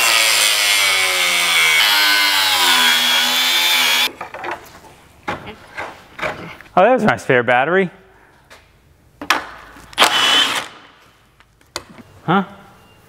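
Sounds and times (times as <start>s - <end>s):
angle grinder grinding steel: 0.0s - 4.1s.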